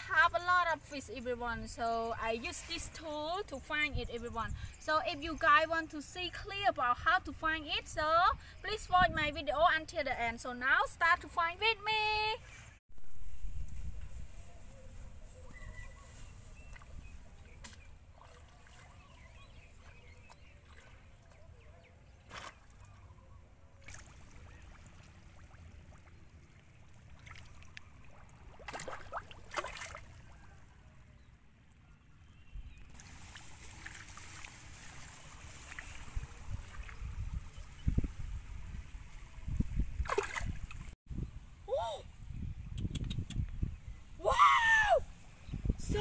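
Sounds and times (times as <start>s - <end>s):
shallow water sloshing and splashing: 16.6s - 23.2s, 23.8s - 31.1s, 32.8s - 41.0s.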